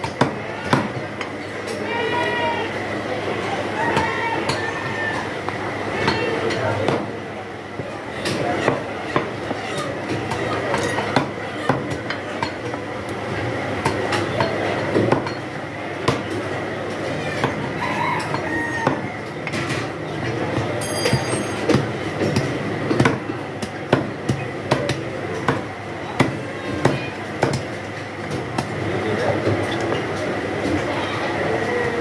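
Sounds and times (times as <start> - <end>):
background din: 20.8 - 21.8.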